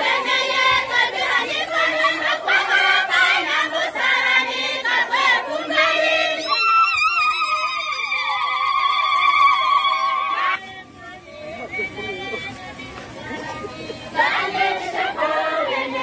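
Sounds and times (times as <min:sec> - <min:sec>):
crowd singing and shouting: 0:00.0 - 0:16.0
high voices holding wavering notes: 0:06.2 - 0:10.6.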